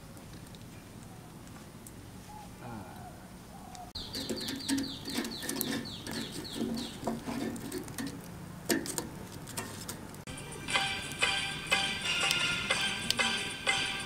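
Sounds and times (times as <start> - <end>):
bird chirping: 2.3 - 7.2.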